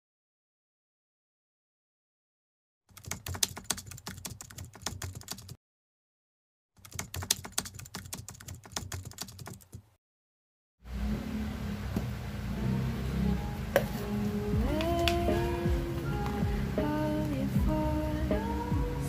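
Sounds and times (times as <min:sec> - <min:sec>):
keyboard typing clicks: 0:02.9 - 0:05.6, 0:06.8 - 0:09.8
music: 0:12.4 - 0:19.0.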